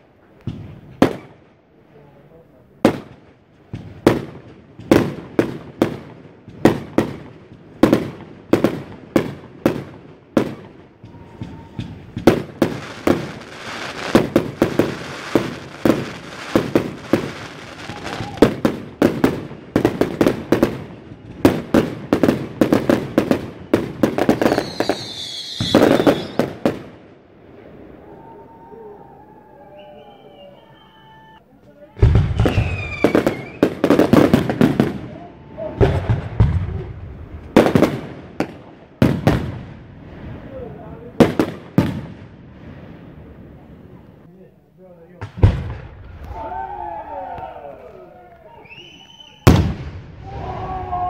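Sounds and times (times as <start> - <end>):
fireworks bangs and crackle: 0.0 - 28.8, 31.8 - 44.3, 45.1 - 51.0
firework whistle: 10.4 - 18.6, 24.3 - 26.6, 27.8 - 31.4, 32.3 - 33.8, 48.4 - 51.0.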